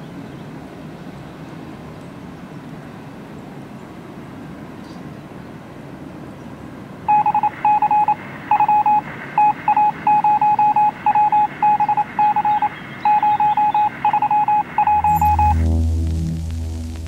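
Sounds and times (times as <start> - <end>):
rapid electronic beeps: 7.1 - 17.0
faint low rumble: 13.1 - 17.0
deep electronic music hum: 13.7 - 17.0.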